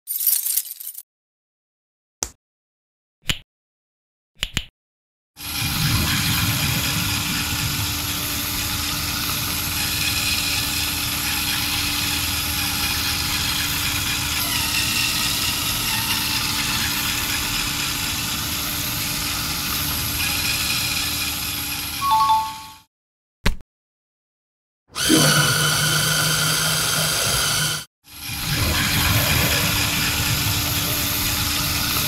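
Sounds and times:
toy electric motor and gears running: 5.4 - 22.0, 25.0 - 32.0.

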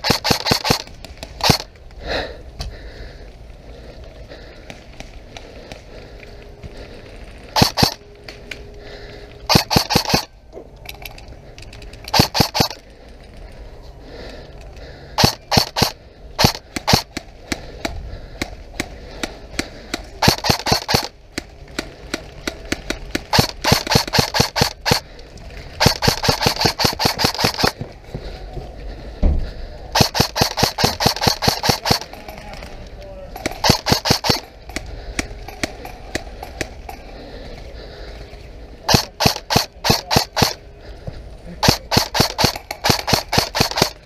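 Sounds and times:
airsoft rifles firing bursts: 0.0 - 1.7, 7.5 - 8.0, 9.5 - 10.4, 11.8 - 12.8, 15.1 - 17.8, 18.4 - 25.1, 25.8 - 27.8, 29.9 - 32.7, 33.4 - 36.8, 38.8 - 40.6, 41.6 - 44.0.

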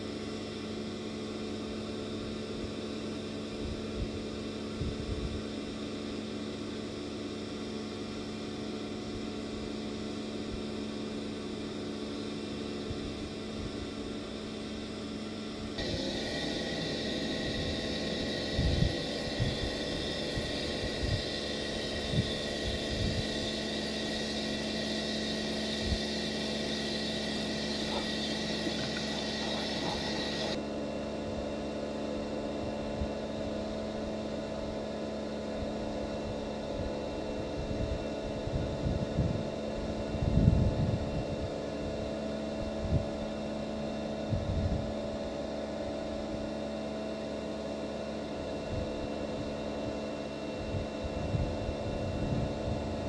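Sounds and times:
pressure washer motor humming: 15.8 - 30.6
water jet hissing on concrete: 15.8 - 30.6.

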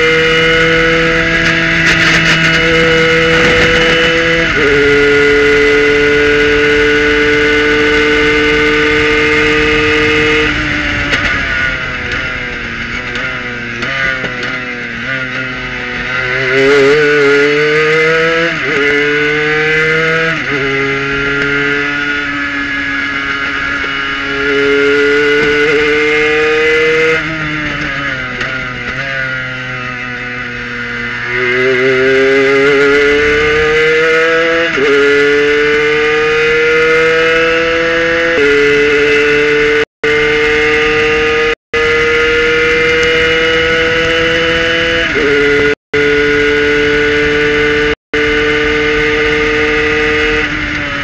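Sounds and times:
wind noise: 0.0 - 29.0
race car engine revving: 0.0 - 51.0.

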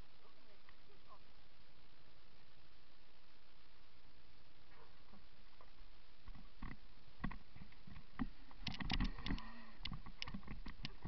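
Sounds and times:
mountain bike rattling over rocks: 5.6 - 11.0.

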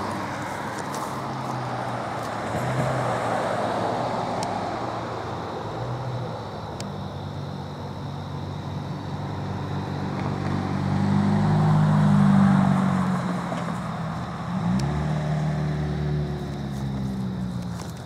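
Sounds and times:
vehicle engine pulling away: 7.4 - 18.0.

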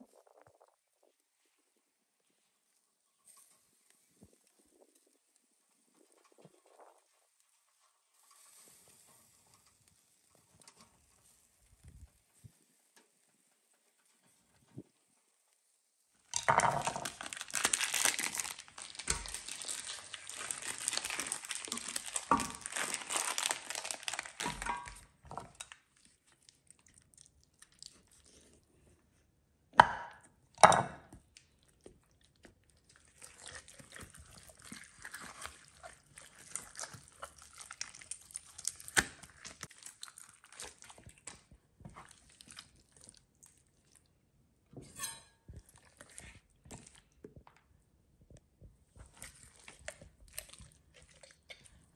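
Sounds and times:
crinkling and rustling: 0.0 - 29.1, 31.2 - 44.0, 44.8 - 51.9
cutting and handling meat: 16.8 - 28.6, 31.4 - 44.0, 49.0 - 51.9.

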